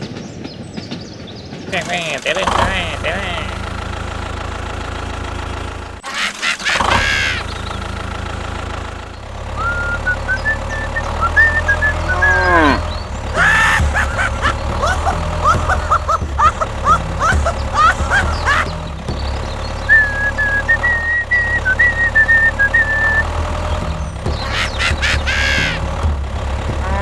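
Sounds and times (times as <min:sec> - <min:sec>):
tractor engine hum: 0:00.0 - 0:27.0
animal calls: 0:06.0 - 0:08.0, 0:09.2 - 0:25.9, 0:26.8 - 0:27.0.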